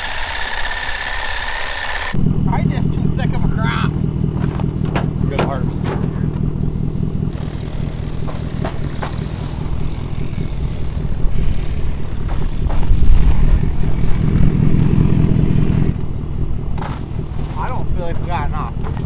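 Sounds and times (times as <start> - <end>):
truck engine idling: 0.0 - 19.0
light knocks and clatters: 4.4 - 6.5.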